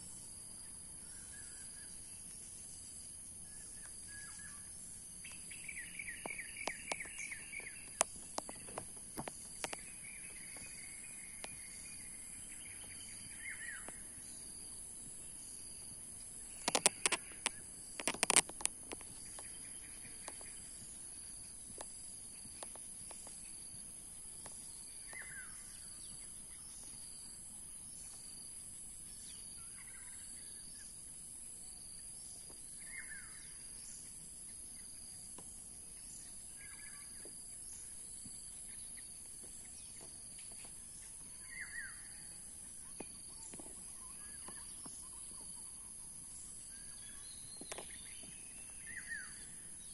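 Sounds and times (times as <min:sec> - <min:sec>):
bird calling: 0:03.4 - 0:14.4, 0:16.4 - 0:21.2, 0:39.7 - 0:49.9
sharp clicks and knocks: 0:16.6 - 0:19.5.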